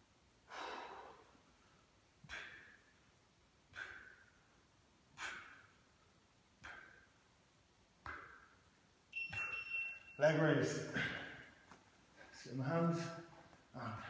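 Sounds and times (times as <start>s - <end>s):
man exhaling forcefully: 2.3s - 2.9s, 3.7s - 4.4s, 5.2s - 5.8s.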